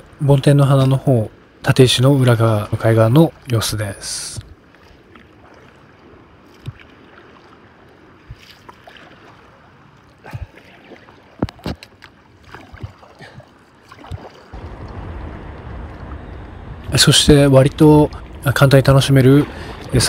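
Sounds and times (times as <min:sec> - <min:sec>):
paddle splashing water: 0:00.0 - 0:20.0
lapping water: 0:08.2 - 0:15.0, 0:17.8 - 0:20.0
rushing noise: 0:14.6 - 0:20.0.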